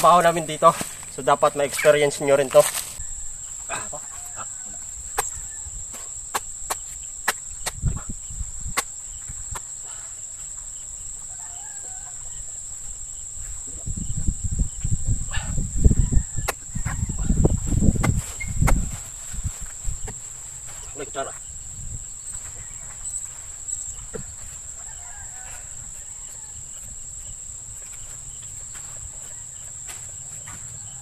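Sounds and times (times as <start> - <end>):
low rumbling bumps: 13.5 - 20.5.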